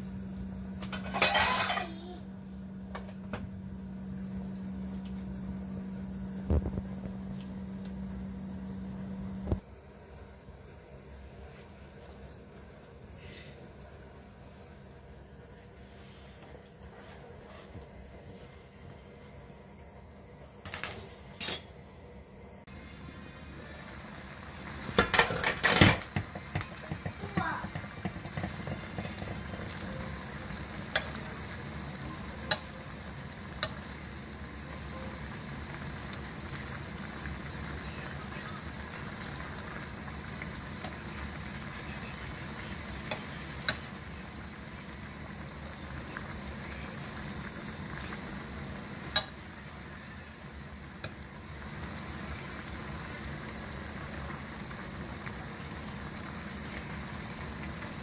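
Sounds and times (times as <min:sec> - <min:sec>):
sauce bubbling and sizzling: 0:22.7 - 0:58.0
metal tongs clicking on pan: 0:49.1 - 0:49.3.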